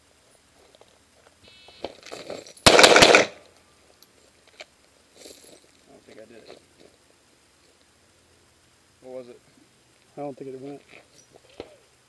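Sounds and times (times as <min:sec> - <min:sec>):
pistol shots: 0:02.6 - 0:03.4.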